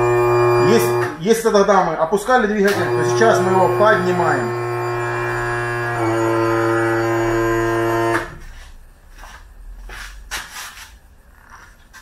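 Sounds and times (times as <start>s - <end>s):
electric pump humming: 0.0s - 8.5s.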